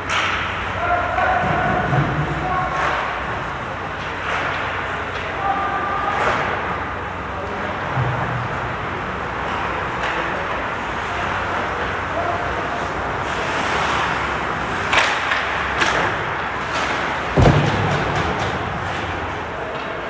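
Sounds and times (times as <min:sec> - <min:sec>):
sticks clacking on puck: 0:00.0 - 0:00.6, 0:03.9 - 0:06.8, 0:09.4 - 0:11.7, 0:12.6 - 0:20.0
skates scraping on ice: 0:08.7 - 0:20.0
heavy thud: 0:17.3 - 0:18.9.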